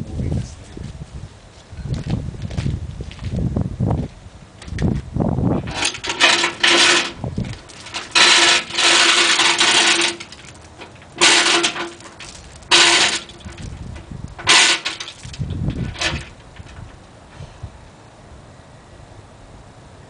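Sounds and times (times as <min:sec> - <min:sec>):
hand chain rattling through hoist: 0:05.7 - 0:16.9.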